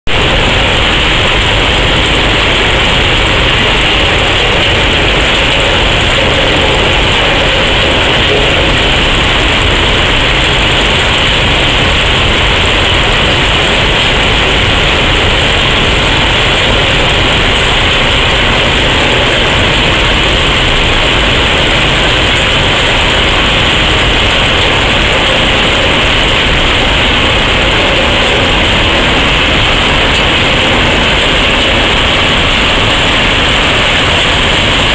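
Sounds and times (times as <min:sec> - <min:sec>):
track machines mechanical din: 0:00.1 - 0:34.9.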